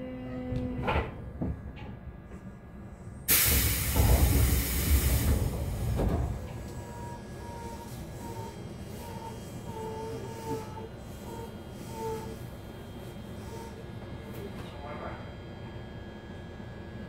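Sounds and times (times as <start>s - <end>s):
air hiss of train doors: 3.3s - 6.8s.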